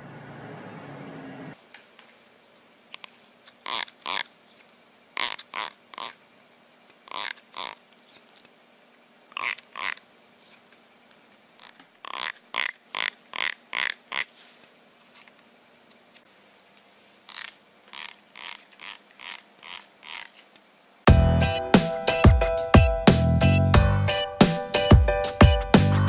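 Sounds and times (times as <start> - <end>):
thumb strumming comb teeth: 3.7 - 4.3, 5.2 - 6.2, 7.1 - 7.8, 9.4 - 10.0, 11.6 - 14.3, 17.3 - 20.4.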